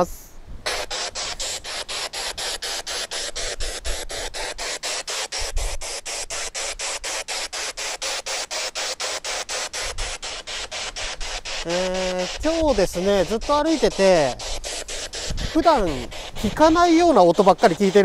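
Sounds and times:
choppy radio static: 11.6 - 14.6, 15.3 - 18.0.

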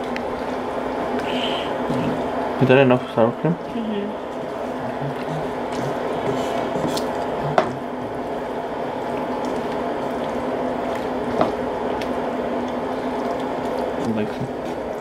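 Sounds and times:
spatula stirring wet food: 3.7 - 15.0.

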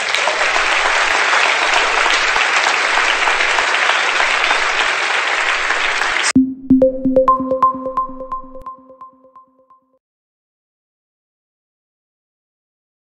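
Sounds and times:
crowd applause: 0.0 - 6.3
music with sharp repeated notes: 6.4 - 9.8.

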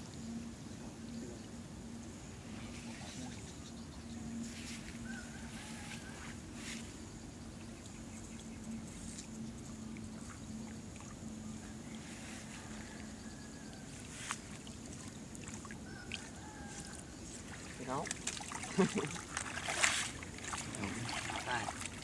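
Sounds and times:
steady high hiss: 0.0 - 15.8
steady low hum: 0.0 - 22.0
water splashes and wood knocks: 14.3 - 22.0.

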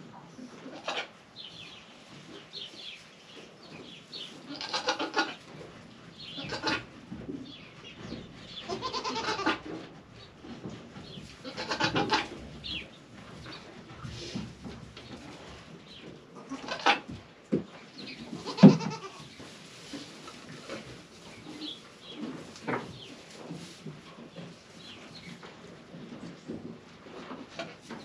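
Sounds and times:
goats bleating: 4.5 - 5.4, 6.4 - 6.8, 8.7 - 9.6, 11.4 - 12.3, 18.4 - 19.2.

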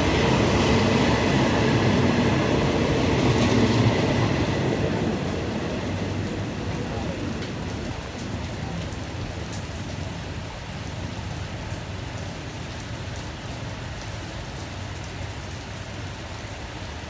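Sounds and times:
passenger train rumble: 0.0 - 10.5
steady rain falling: 0.0 - 17.0.

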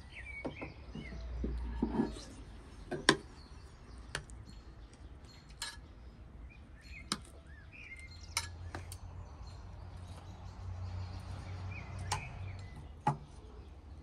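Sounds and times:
birds chirping faintly: 0.0 - 14.0
tongs clinking on ceramic plates: 5.5 - 5.8.

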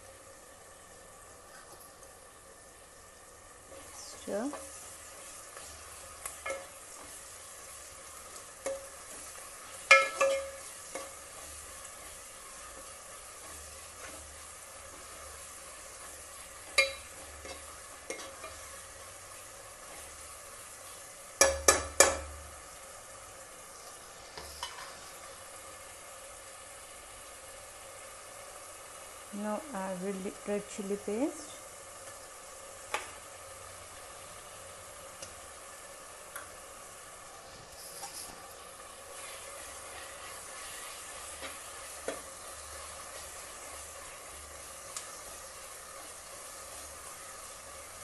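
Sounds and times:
onions sizzling in a pan: 0.0 - 48.0
spatula scraping and knocking pan: 4.5 - 7.3, 8.2 - 18.9, 21.4 - 22.4, 39.2 - 43.8.

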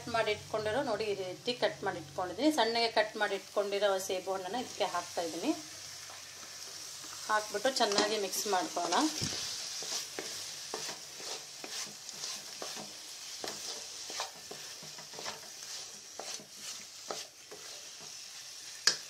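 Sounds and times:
steady sizzle: 0.0 - 19.0
utensil scraping a pan: 8.7 - 18.9.

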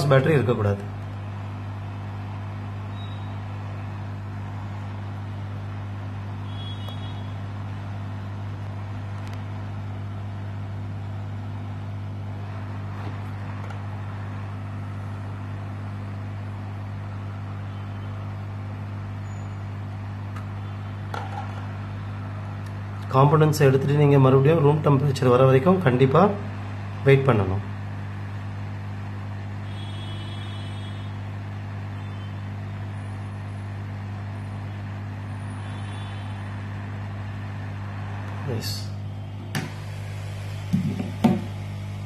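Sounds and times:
low steady hum: 0.0 - 42.0
hot air blower rushing: 39.3 - 42.0.

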